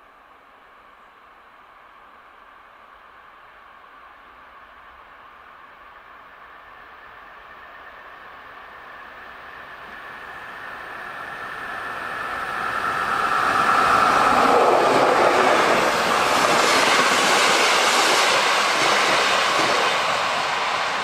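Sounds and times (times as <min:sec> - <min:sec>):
diesel locomotive engine: 0:00.5 - 0:21.0
train wheels rushing on rails: 0:06.4 - 0:21.0.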